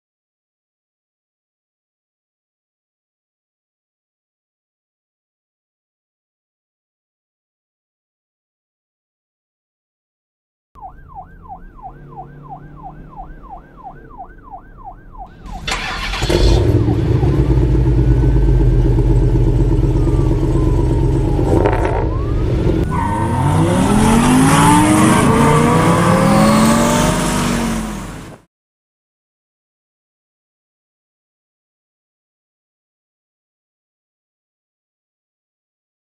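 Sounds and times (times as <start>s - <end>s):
siren yelping: 10.8s - 27.6s
car engine revving: 11.0s - 28.4s.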